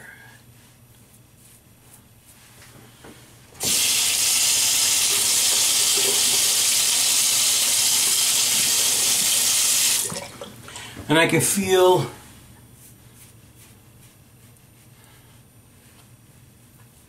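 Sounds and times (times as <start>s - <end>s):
water running into a sink: 3.6s - 10.5s.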